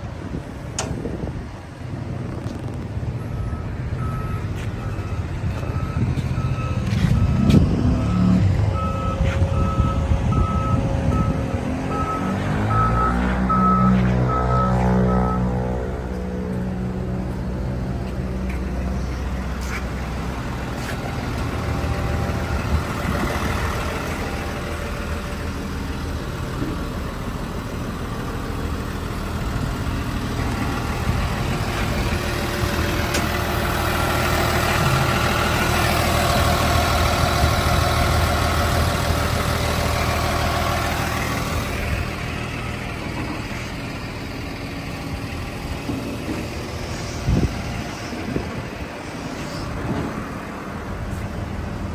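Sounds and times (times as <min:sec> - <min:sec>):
diesel engine idling: 0:00.0 - 0:51.9.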